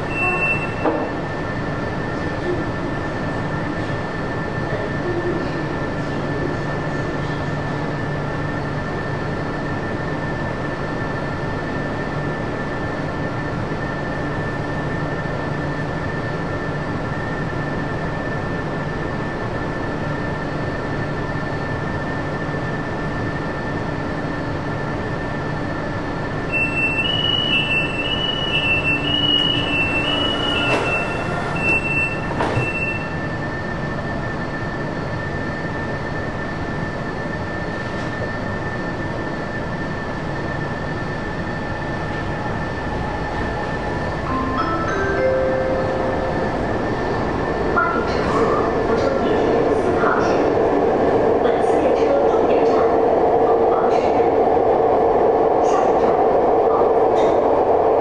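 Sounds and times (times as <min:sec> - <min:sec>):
two-tone door warning beeping: 0:00.0 - 0:01.1, 0:26.5 - 0:33.3
train electrical equipment humming: 0:00.0 - 0:58.0.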